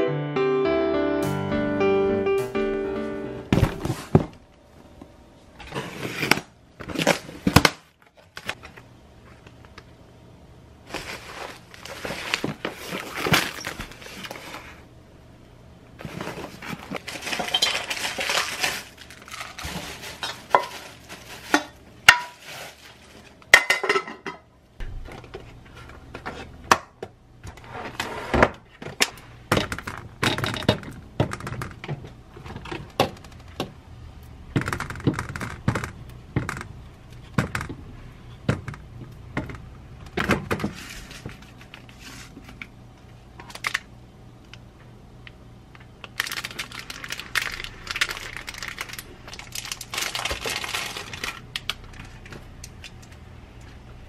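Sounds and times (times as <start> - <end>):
packaging rustling: 10.9 - 14.8, 16.0 - 23.4, 46.0 - 53.0
handling plastic salad spinner: 16.0 - 23.5.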